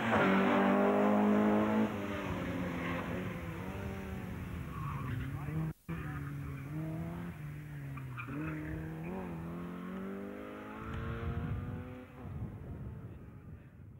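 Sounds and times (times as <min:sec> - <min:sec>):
car engine revving hard: 0:00.0 - 0:04.5, 0:05.6 - 0:12.2.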